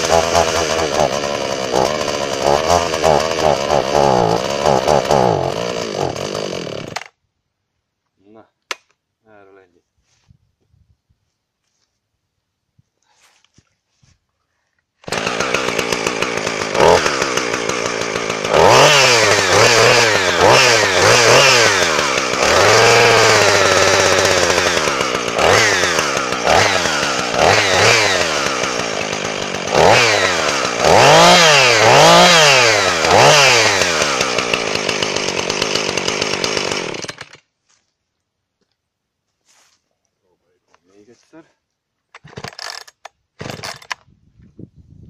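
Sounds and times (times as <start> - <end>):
chainsaw revving: 0.0 - 7.2, 15.0 - 37.5, 42.2 - 44.0.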